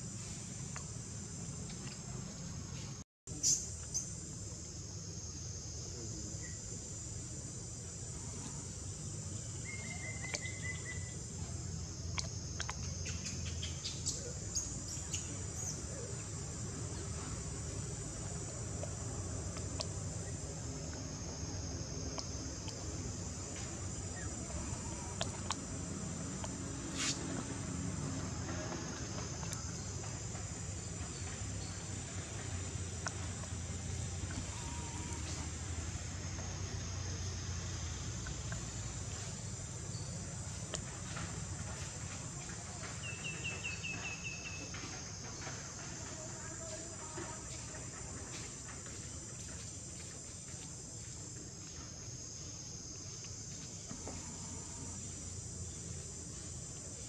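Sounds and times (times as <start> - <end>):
high-pitched insect chorus: 0.0 - 57.0
faint clicks: 24.8 - 25.6.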